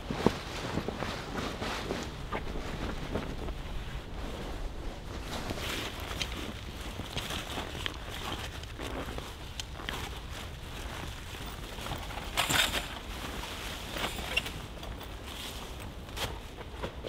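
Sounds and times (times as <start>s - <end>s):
canvas rustling: 0.0s - 17.0s.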